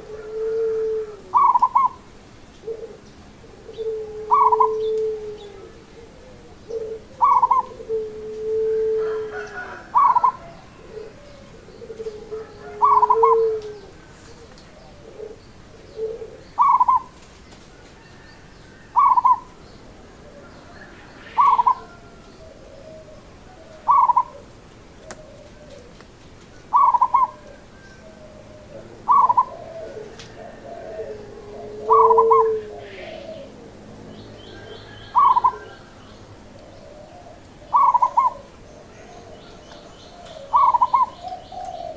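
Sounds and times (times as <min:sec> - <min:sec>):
dove cooing: 0:00.0 - 0:41.9.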